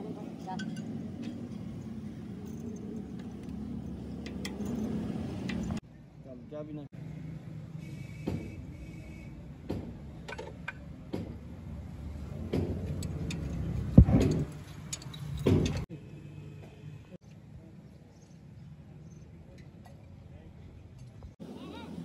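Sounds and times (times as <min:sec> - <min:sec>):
metal clicks and knocks: 0:09.7 - 0:11.4, 0:12.4 - 0:15.9
loud metal knock: 0:15.4 - 0:15.9.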